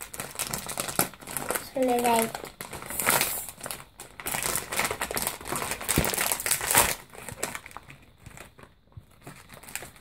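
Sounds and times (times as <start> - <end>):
foil packaging crinkling: 0.0 - 10.0.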